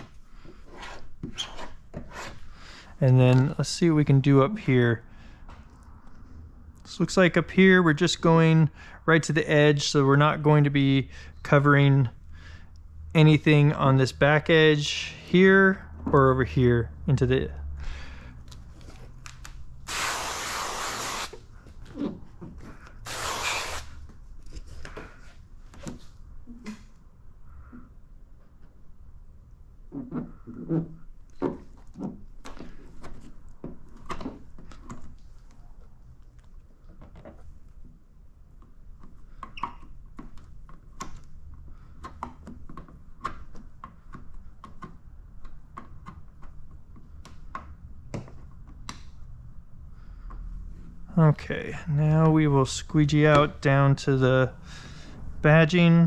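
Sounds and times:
handling clicks and squeaks: 0:01.2 - 0:02.0, 0:38.6 - 0:47.7
spray bottle hissing: 0:19.9 - 0:21.4, 0:23.1 - 0:23.9.

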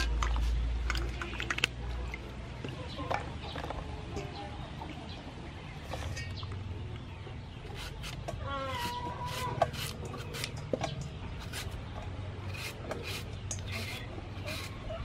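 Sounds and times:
peeler rasping strips off mango: 0:07.7 - 0:10.6, 0:11.4 - 0:11.8, 0:12.4 - 0:15.0.

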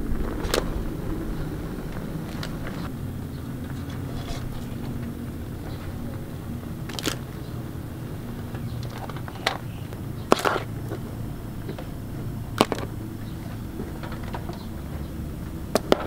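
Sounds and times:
steady low hum: 0:00.0 - 0:16.0
crab shells clacking in basket: 0:06.8 - 0:07.3.

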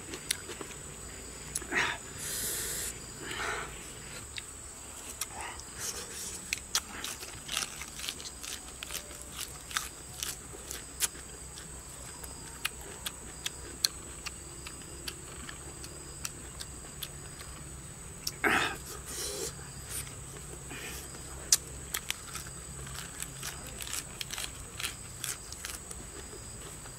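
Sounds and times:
man chewing with lip smacks: 0:05.1 - 0:17.6.

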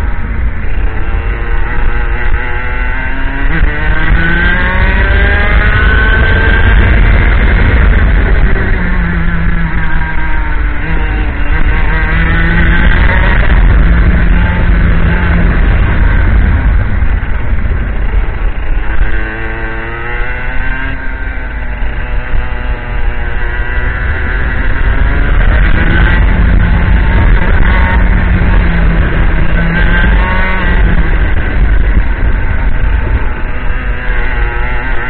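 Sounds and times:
kart engine revving: 0:00.0 - 0:35.0.

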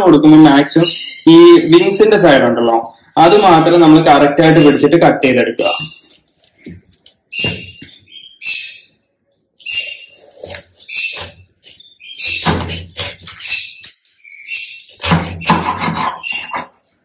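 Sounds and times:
knife cutting frozen chicken: 0:09.9 - 0:14.2, 0:14.9 - 0:16.8
heavy knife chops: 0:12.4 - 0:13.4, 0:15.0 - 0:16.7.

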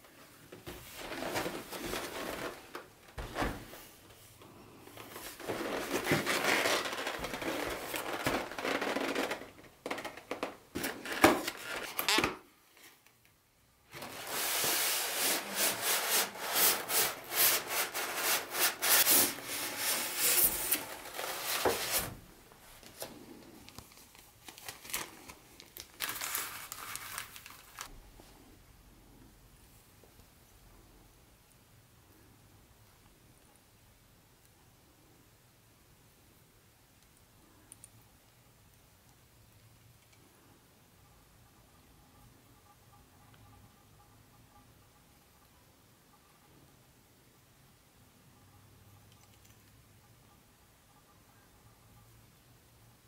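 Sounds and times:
cardboard scraping and sliding: 0:00.7 - 0:03.9, 0:05.0 - 0:09.6, 0:13.9 - 0:22.3.

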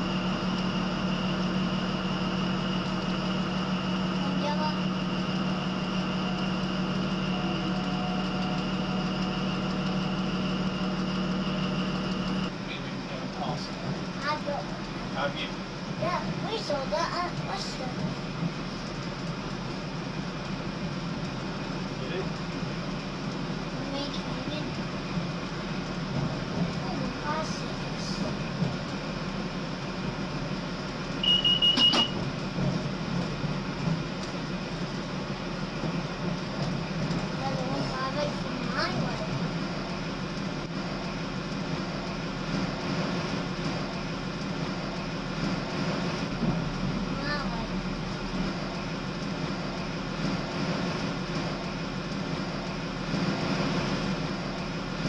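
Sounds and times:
constant low hum: 0:00.0 - 0:55.0
diesel train engine drone: 0:00.0 - 0:55.0
high-pitched pulsing beeps: 0:31.2 - 0:32.2.

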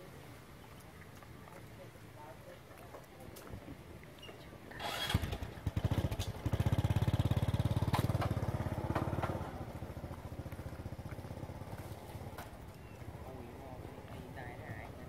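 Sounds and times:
small engine running: 0:04.7 - 0:12.5.

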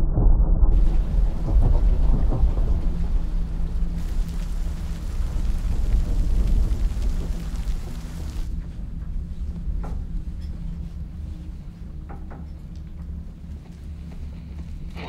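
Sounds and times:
thunder rumbling: 0:00.0 - 0:09.4
heavy rain: 0:00.7 - 0:08.6.

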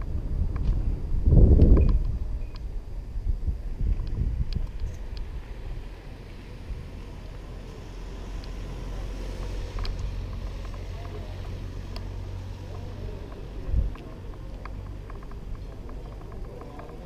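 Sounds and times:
wind on microphone: 0:00.0 - 0:07.2
bike tyres rumbling on pavers: 0:06.4 - 0:17.0
light clicks: 0:09.3 - 0:17.0.

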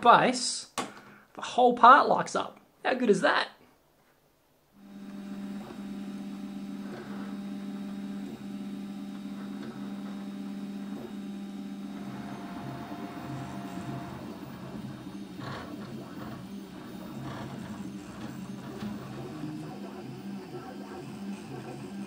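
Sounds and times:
stepper motors whining: 0:04.8 - 0:22.0.

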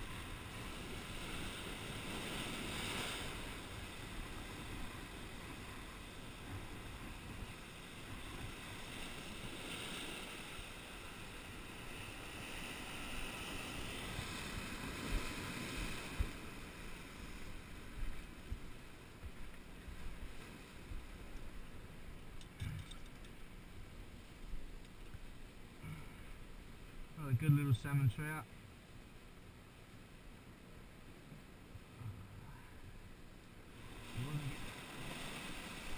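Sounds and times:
surf washing over rocks: 0:00.0 - 0:23.5, 0:33.6 - 0:35.9.

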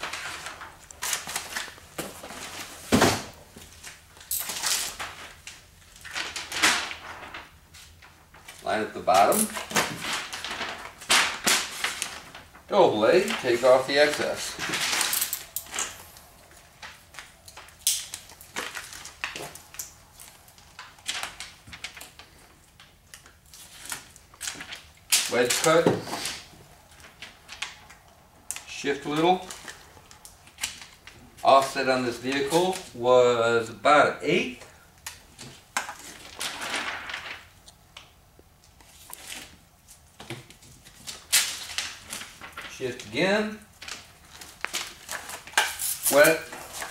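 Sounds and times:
film rustling: 0:00.0 - 0:33.0, 0:34.6 - 0:46.9
razor blade scraping film on glass: 0:45.1 - 0:46.9.

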